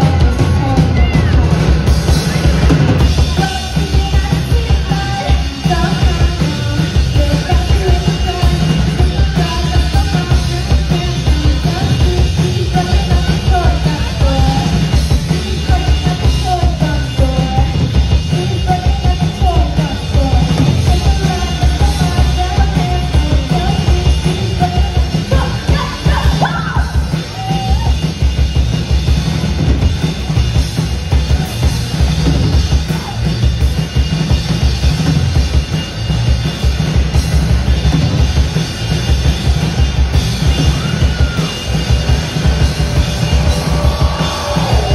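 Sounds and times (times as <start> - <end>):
live rock band playing: 0.0 - 44.9
pounding kick drum and bass: 0.0 - 44.9.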